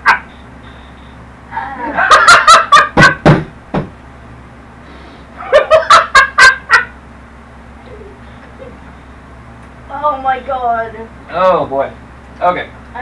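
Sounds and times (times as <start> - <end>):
man laughing heartily: 1.5 - 3.2, 5.4 - 6.9.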